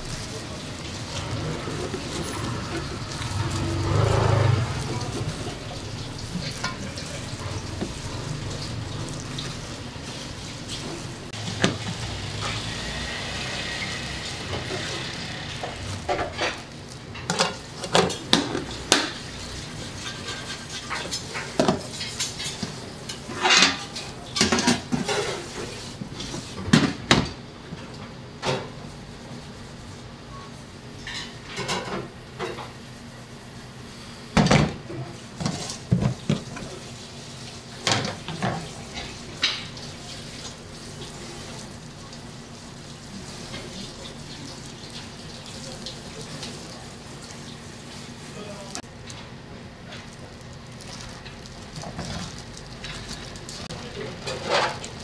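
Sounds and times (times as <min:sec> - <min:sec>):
steel bowl and containers clinking: 0:00.0 - 0:26.6, 0:49.8 - 0:55.0.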